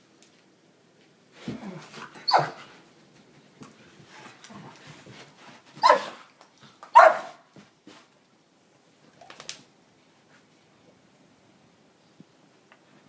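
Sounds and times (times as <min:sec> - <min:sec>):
dogs scuffling: 0:01.4 - 0:08.2
dogs barking: 0:05.8 - 0:06.2, 0:06.9 - 0:07.4.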